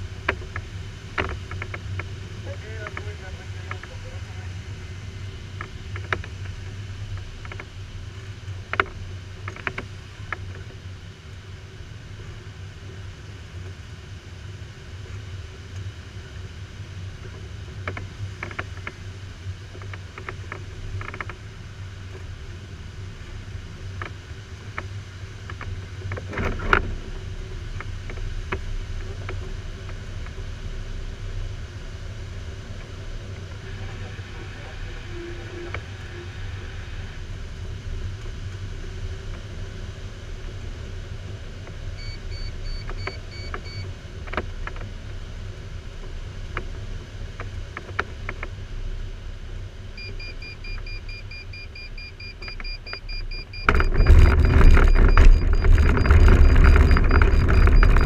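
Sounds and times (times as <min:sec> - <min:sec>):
small clicks and knocks: 0:00.2 - 0:02.1, 0:05.6 - 0:07.7, 0:08.4 - 0:10.7, 0:17.3 - 0:19.0, 0:19.7 - 0:21.4, 0:24.0 - 0:27.0, 0:42.8 - 0:44.9, 0:47.4 - 0:48.6, 0:52.4 - 0:58.0.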